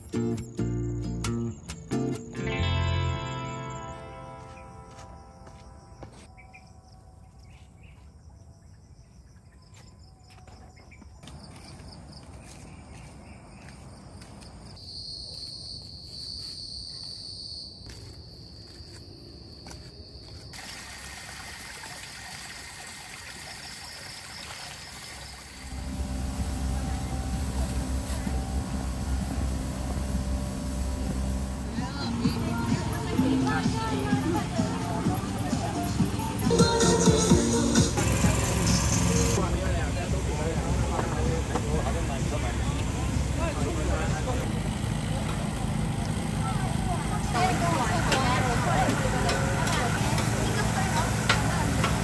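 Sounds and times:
insects droning: 0.0s - 45.2s
traffic rumble: 10.2s - 14.8s, 25.3s - 52.0s
voices: 25.8s - 52.0s.

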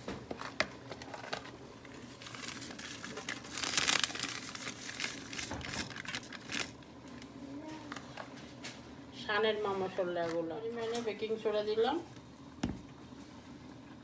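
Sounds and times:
spice packet crinkling: 0.8s - 7.3s.

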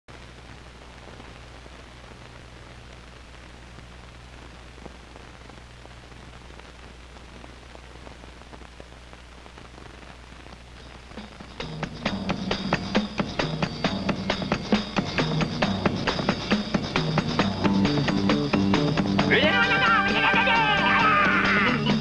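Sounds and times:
clicks and crackles: 0.1s - 11.4s
film soundtrack hiss: 0.1s - 22.0s.

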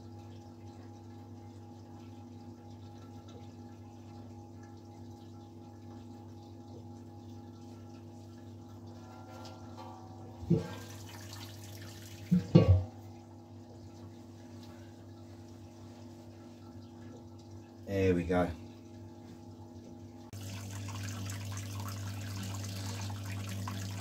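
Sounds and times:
liquid running: 0.0s - 24.0s
metal pot lid clanking: 12.3s - 12.9s.

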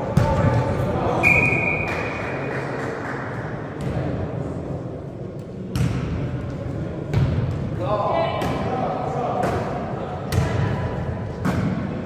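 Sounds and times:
murmur of voices: 0.0s - 12.0s
referee whistle: 1.2s - 2.0s.

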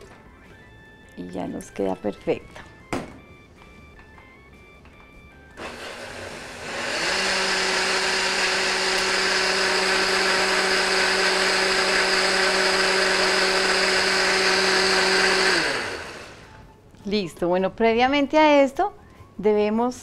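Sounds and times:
blender running: 5.5s - 16.5s.

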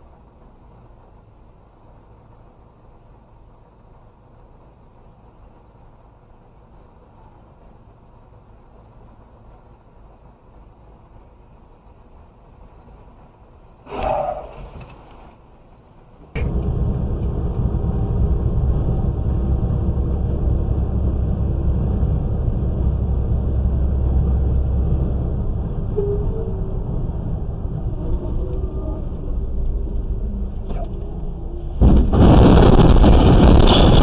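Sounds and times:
road and engine rumble: 0.0s - 34.0s
loud rush of noise: 16.3s - 34.0s.

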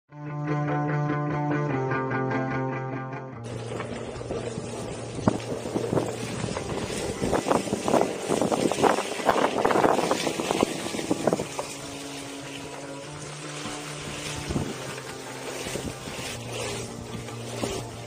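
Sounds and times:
steady hum: 3.4s - 18.0s
tyre rolling over gravel and leaves: 3.5s - 18.0s
wind buffeting microphone: 3.6s - 11.9s, 14.0s - 15.0s.

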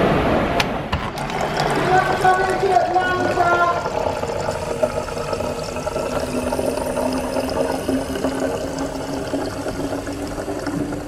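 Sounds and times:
water stream filling plastic bottle: 0.9s - 11.0s.

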